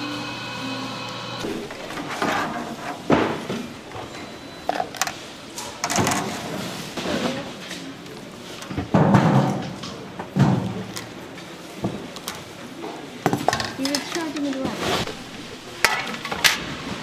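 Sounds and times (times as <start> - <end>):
utensils and containers clinking: 13.2 - 16.8.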